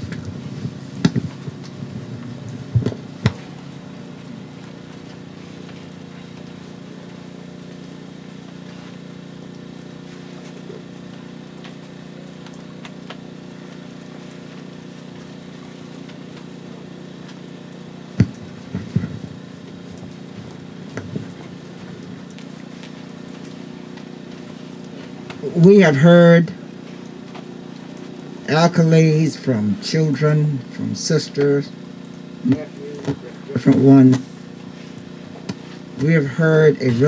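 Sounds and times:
microphone handling knocks: 0:00.0 - 0:03.5
low hum through pa system: 0:00.0 - 0:37.0.

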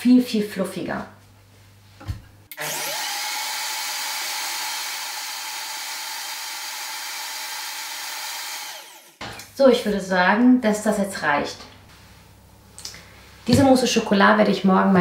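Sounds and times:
blender whining at high speed: 0:02.5 - 0:09.2.

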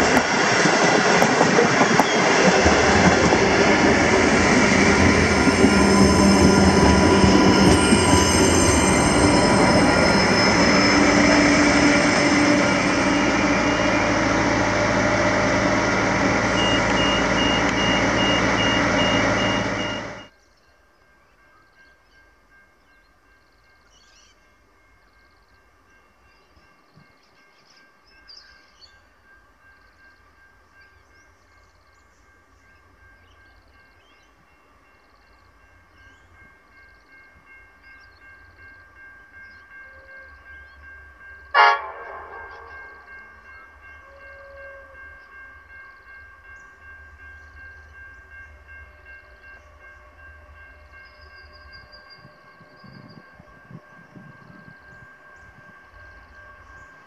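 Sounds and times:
diesel locomotive rumble: 0:00.0 - 0:20.3
train horn blast: 0:10.7 - 0:20.3, 0:39.8 - 0:40.6, 0:41.5 - 0:45.3.

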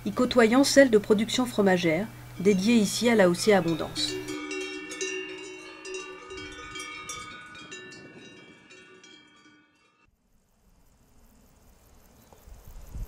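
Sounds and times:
cowbells clanking: 0:01.8 - 0:10.1.

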